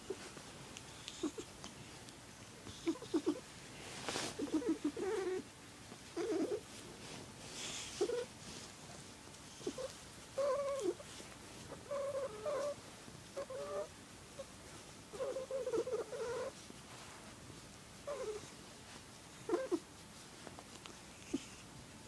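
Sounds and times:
cat purring: 0:00.0 - 0:16.7, 0:18.0 - 0:18.6, 0:19.3 - 0:20.0, 0:20.6 - 0:21.8.

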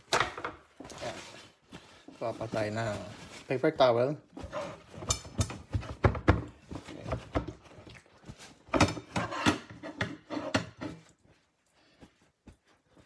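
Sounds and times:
paper towel crinkling on steak: 0:00.8 - 0:04.2.

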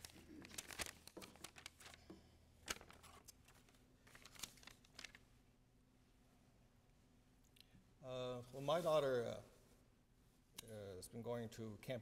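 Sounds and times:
paper rustling: 0:00.0 - 0:05.2.

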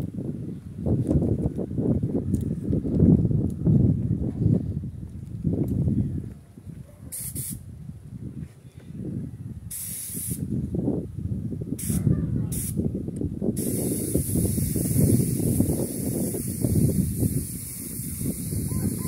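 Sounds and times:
spray gun hissing: 0:07.2 - 0:07.6, 0:09.7 - 0:10.4, 0:13.6 - 0:19.0.

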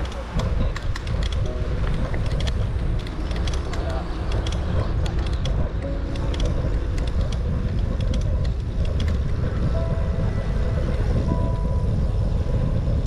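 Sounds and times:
bicycle clicks and rattles: 0:00.0 - 0:09.9
bicycle tyre noise: 0:00.0 - 0:13.0
wind rumble on microphone: 0:00.0 - 0:13.0.

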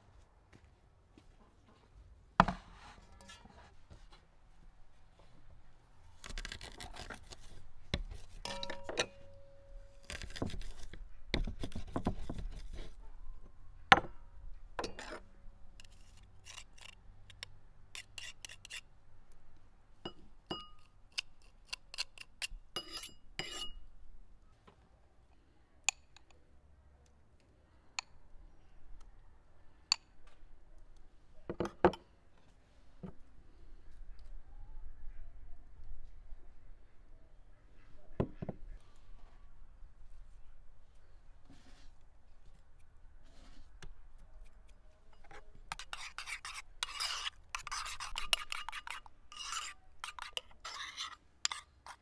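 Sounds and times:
knife on wooden cutting board: 0:06.2 - 0:09.2, 0:10.0 - 0:12.9, 0:22.8 - 0:23.7, 0:45.2 - 0:52.0
metal spoon clinking in bowl: 0:08.4 - 0:09.8, 0:20.1 - 0:20.9
garlic press clinking on bowl: 0:08.5 - 0:09.4.

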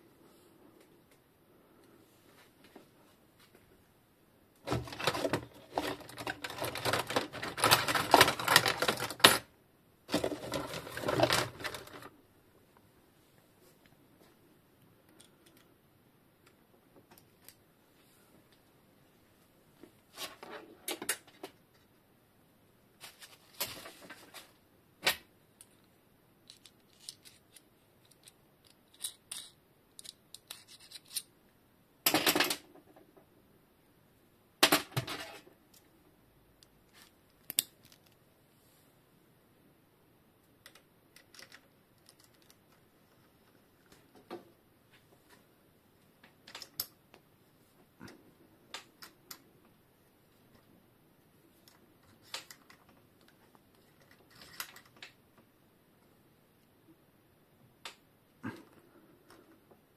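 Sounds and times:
metal parts clattering: 0:04.7 - 0:09.5.

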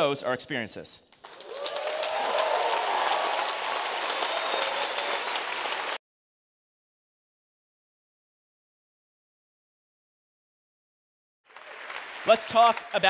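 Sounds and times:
large audience applauding: 0:01.2 - 0:06.0, 0:11.5 - 0:13.0
voices cheering: 0:01.3 - 0:06.0.

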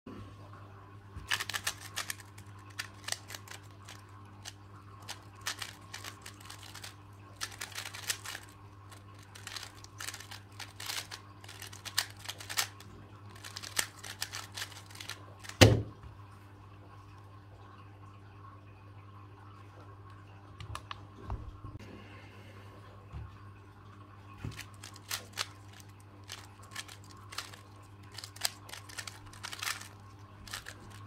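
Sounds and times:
cube thumping down: 0:01.3 - 0:02.2, 0:13.4 - 0:15.9
puzzle cube clicking: 0:01.3 - 0:15.8, 0:24.5 - 0:31.0.

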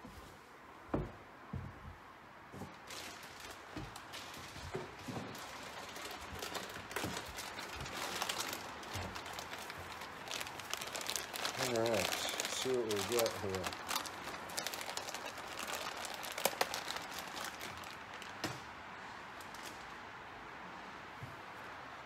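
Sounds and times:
plastic packaging crackling: 0:02.7 - 0:18.6, 0:19.3 - 0:20.0.

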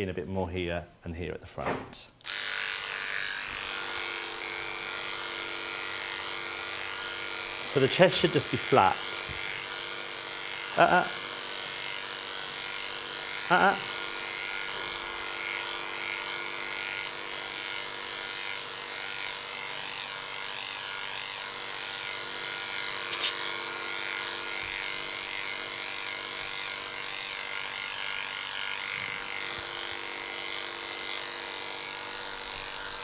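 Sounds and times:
electric clipper running: 0:02.2 - 0:33.0.

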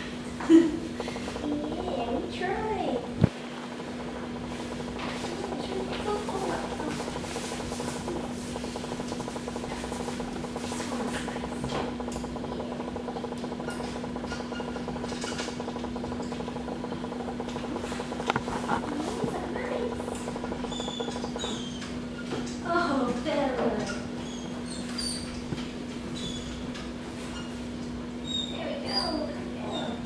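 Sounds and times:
low electrical hum: 0:00.0 - 0:30.0
sharp clicks: 0:00.8 - 0:22.6.

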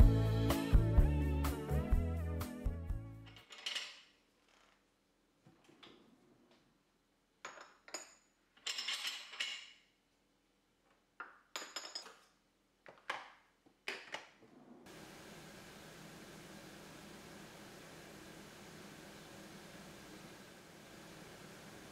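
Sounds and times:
cutlery clinking in a drawer: 0:03.2 - 0:04.7, 0:07.4 - 0:09.9, 0:11.5 - 0:12.4.

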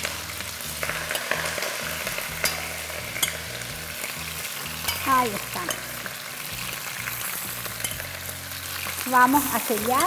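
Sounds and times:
meat sizzling in hot oil: 0:00.0 - 0:10.0
metal tongs clicking on pot: 0:02.4 - 0:03.5, 0:04.8 - 0:06.0, 0:07.8 - 0:08.2.

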